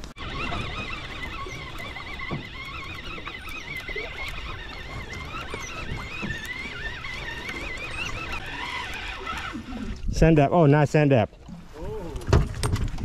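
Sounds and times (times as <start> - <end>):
fishing reel cranking whine: 0.1 - 10.0.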